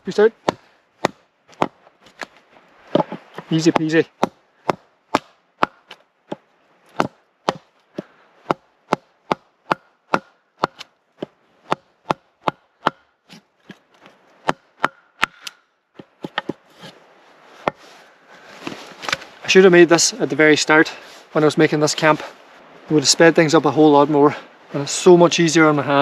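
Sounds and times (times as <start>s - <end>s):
wooden mallet striking a hatchet: 0.4s - 2.3s, 2.9s - 13.8s, 14.4s - 16.6s.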